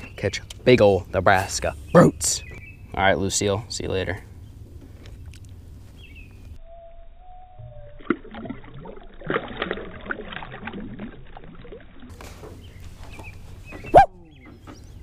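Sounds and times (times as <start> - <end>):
water splashing and sloshing: 7.8 - 15.0.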